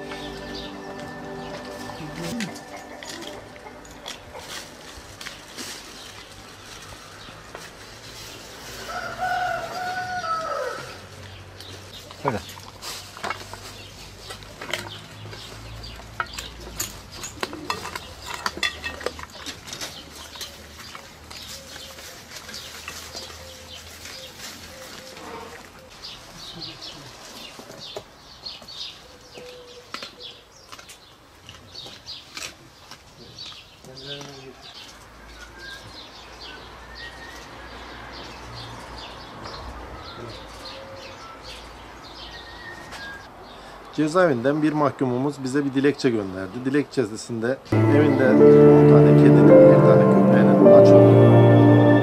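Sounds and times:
small birds chirping: 25.8s - 43.7s.

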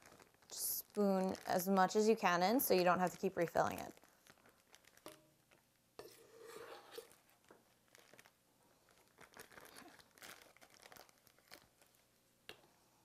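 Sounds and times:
plastic bag crinkling: 0.0s - 5.6s, 6.6s - 12.2s
spoon scraping and tapping: 6.0s - 7.1s.

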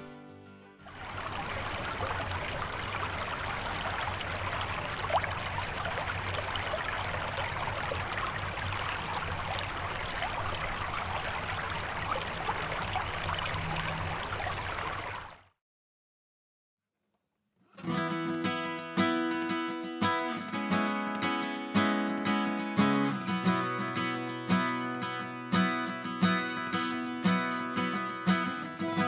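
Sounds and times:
running water: 0.8s - 15.5s.

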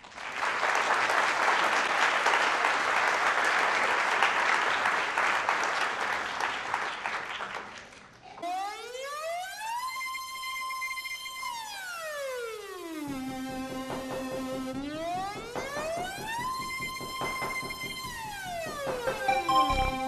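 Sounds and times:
audience applauding: 0.0s - 8.4s, 13.2s - 20.0s.

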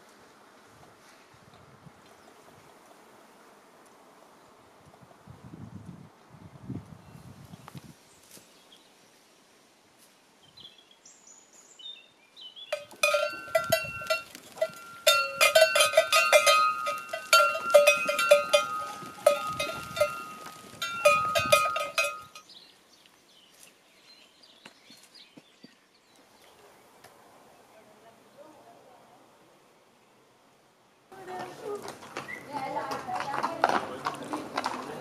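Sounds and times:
livestock bells clanking: 12.7s - 22.5s.

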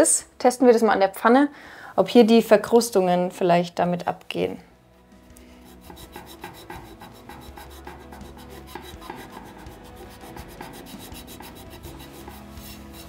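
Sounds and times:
eraser block scrubbing a pan: 5.6s - 13.0s.

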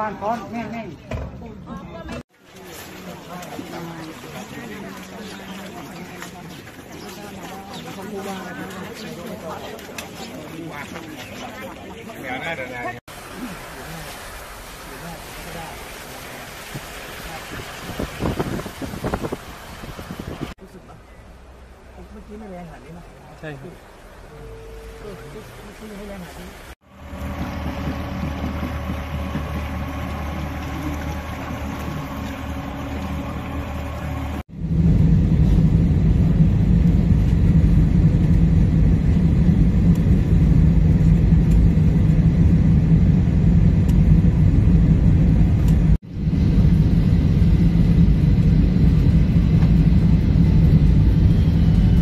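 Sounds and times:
boat motor running: 24.3s - 34.9s
aircraft engine drone in cabin: 27.0s - 52.0s.

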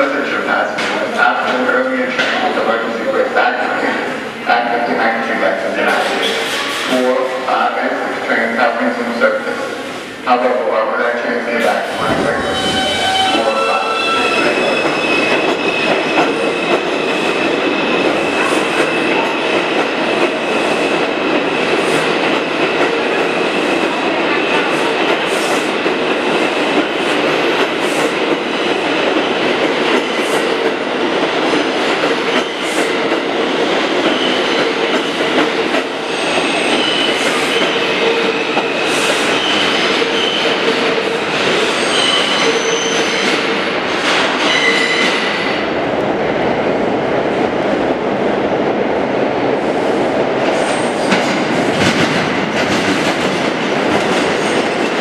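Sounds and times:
subway train wheels rattling: 0.0s - 55.0s
steady tones: 11.7s - 15.0s.

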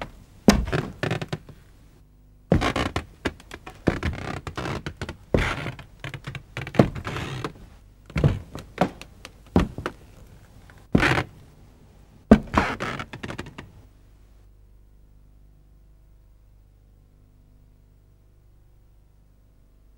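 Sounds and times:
knocks and thuds: 0.5s - 1.5s, 2.5s - 7.5s, 8.1s - 9.0s, 9.6s - 10.0s, 12.3s - 13.5s.

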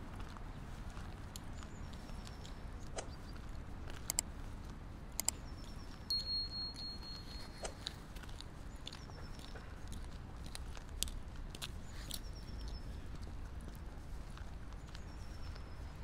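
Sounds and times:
sharp clicks: 4.0s - 4.3s, 5.1s - 5.4s
thin high tone: 6.1s - 7.7s.

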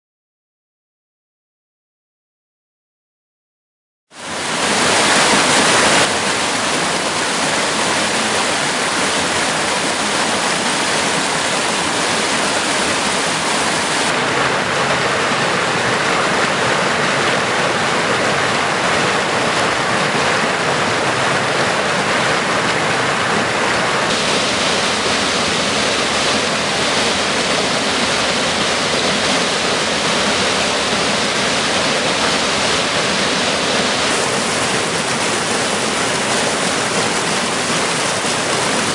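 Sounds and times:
stream rushing over rocks: 4.2s - 38.9s.

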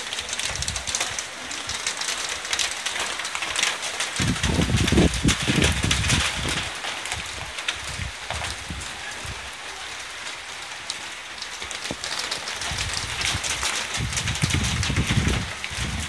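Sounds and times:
heavy rain pattering: 0.0s - 16.0s
wind gusts on microphone: 4.1s - 9.6s, 11.9s - 16.0s.

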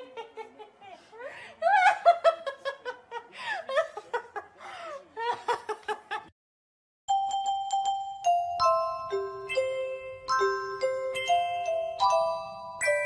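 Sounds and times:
woman laughing: 0.0s - 6.3s
glockenspiel-like music: 7.1s - 13.0s.

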